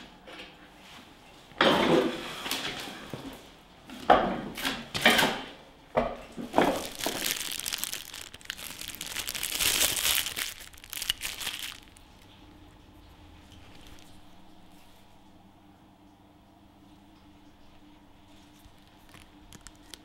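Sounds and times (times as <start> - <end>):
plastic wrapping crinkling: 6.5 - 12.2, 13.6 - 14.2, 18.5 - 20.0.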